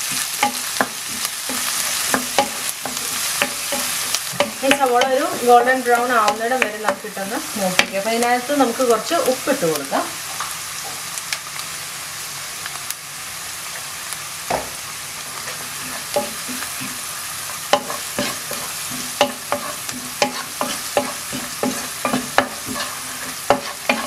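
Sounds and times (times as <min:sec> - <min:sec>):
spatula scraping a pan: 0:00.0 - 0:07.0, 0:15.4 - 0:17.1, 0:17.7 - 0:24.0
onions sizzling in oil: 0:00.0 - 0:24.0.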